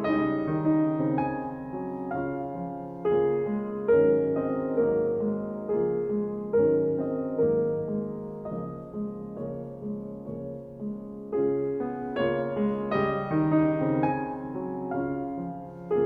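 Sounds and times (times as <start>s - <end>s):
slow gentle piano music: 0.0s - 16.0s.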